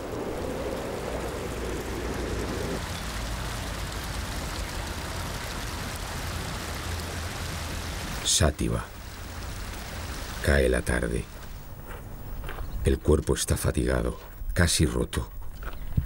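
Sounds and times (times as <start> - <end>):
fountain water splashing into trough: 0.0 - 11.2
low steady rush: 0.0 - 12.4.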